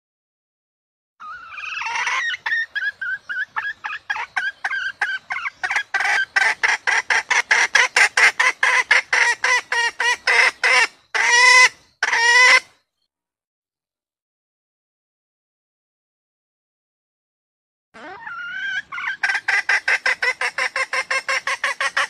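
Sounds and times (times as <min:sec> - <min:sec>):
hen clucking: 0:01.2 - 0:12.7, 0:18.0 - 0:22.0
hen drawn-out calls: 0:01.2 - 0:12.7, 0:18.0 - 0:22.0.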